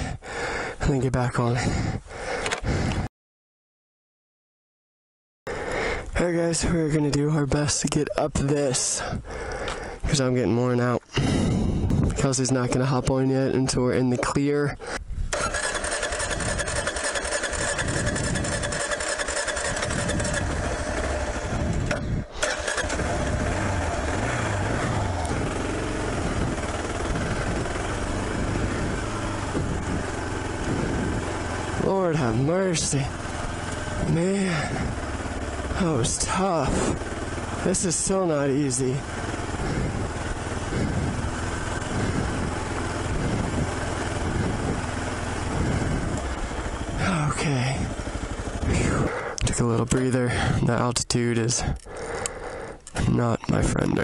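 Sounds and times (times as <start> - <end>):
motorcycle engine revving under load: 15.3 - 49.5
motorcycle engine idling: 15.3 - 50.6.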